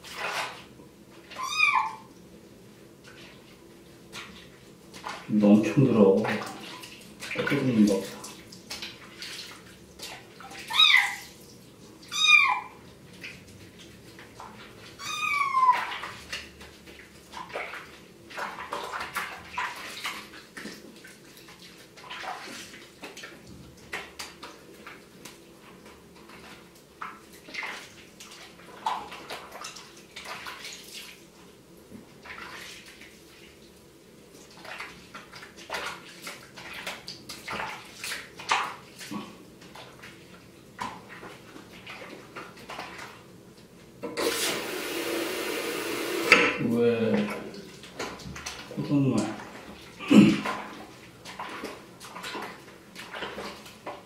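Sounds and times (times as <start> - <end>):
water sloshing in a sink: 0.0 - 54.0
kitten mewing: 1.4 - 2.1, 10.7 - 11.2, 15.0 - 15.9.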